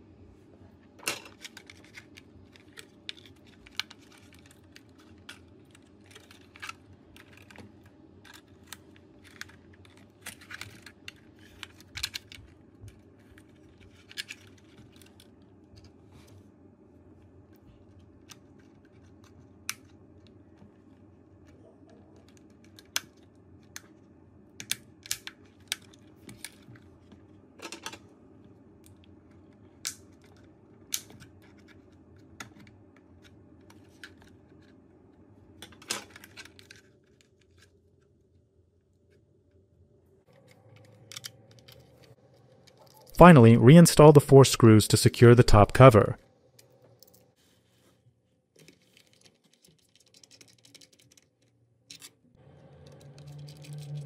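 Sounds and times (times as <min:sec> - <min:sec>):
faint low hum: 0:00.0 - 0:54.0
plastic parts clicking: 0:01.0 - 0:15.9.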